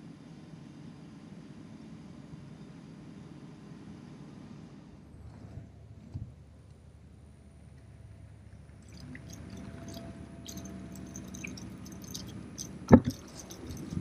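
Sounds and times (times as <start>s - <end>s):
fishing reel clicking: 9.3s - 14.0s.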